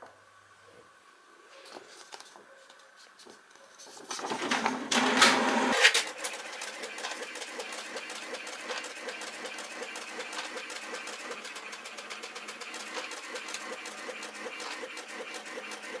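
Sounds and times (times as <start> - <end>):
paper rustling: 1.6 - 4.7
scanner motor buzzing: 5.8 - 16.0.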